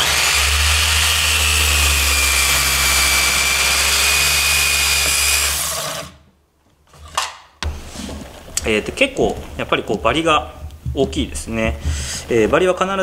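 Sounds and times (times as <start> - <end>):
circular saw cutting wood: 0.0 - 6.2.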